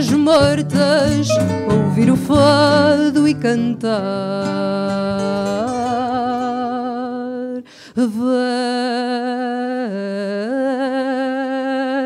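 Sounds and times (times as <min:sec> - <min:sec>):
woman singing with vibrato: 0:00.0 - 0:12.0
woman taking a breath: 0:07.6 - 0:08.0.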